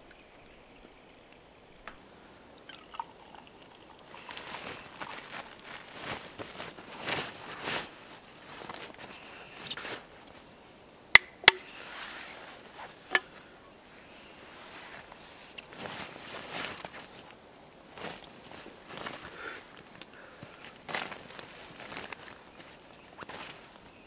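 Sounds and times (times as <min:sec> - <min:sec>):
beer pouring into mug: 0:02.4 - 0:05.6.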